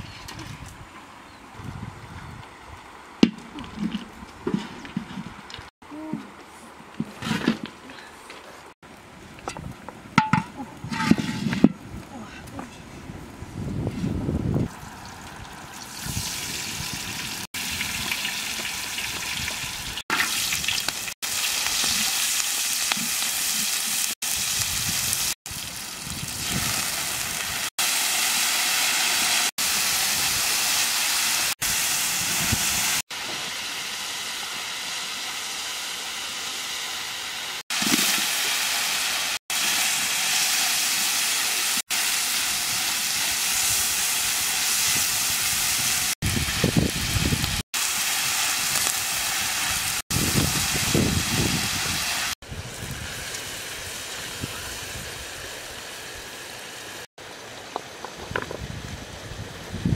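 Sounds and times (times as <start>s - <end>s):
oil sizzling in a wok: 15.4s - 57.1s.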